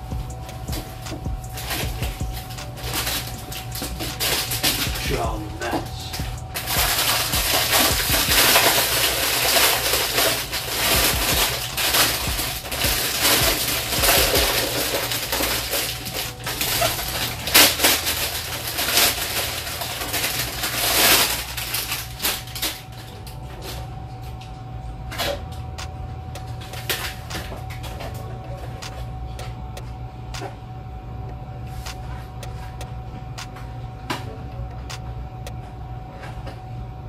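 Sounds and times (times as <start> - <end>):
plastic bag crinkling: 0.8 - 23.2.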